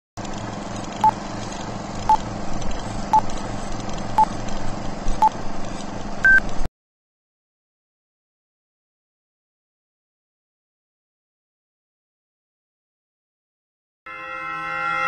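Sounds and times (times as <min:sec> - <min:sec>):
whirring hum with low flutter: 0:00.2 - 0:06.7
countdown beeps: 0:06.2 - 0:06.4.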